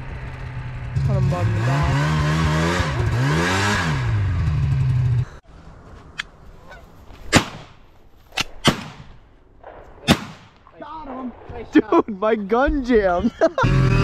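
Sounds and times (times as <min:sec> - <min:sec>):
snowmobile engine revving: 0:00.0 - 0:05.4, 0:13.3 - 0:14.0
faint goose honking: 0:06.6 - 0:07.0
shotgun shots: 0:07.3 - 0:07.8, 0:08.4 - 0:10.6.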